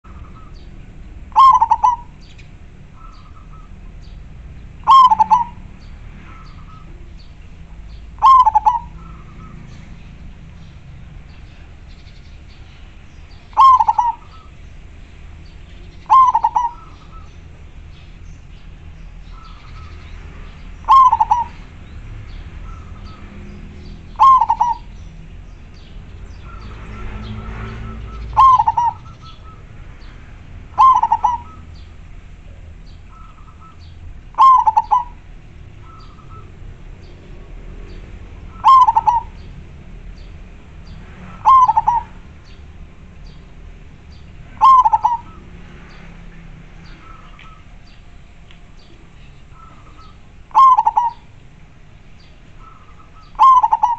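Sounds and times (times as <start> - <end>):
dove cooing: 0.1 - 4.0, 4.8 - 7.0, 8.1 - 9.6, 13.5 - 14.6, 16.0 - 17.5, 20.8 - 21.8, 24.1 - 25.0, 26.4 - 29.7, 30.7 - 31.8, 32.5 - 36.6, 38.4 - 39.6, 41.3 - 42.5, 44.5 - 45.5, 49.5 - 51.4, 52.6 - 53.9.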